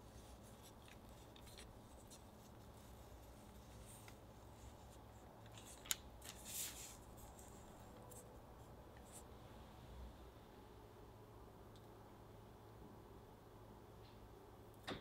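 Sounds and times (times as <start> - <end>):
paper and dough rustling: 0.0 - 9.3.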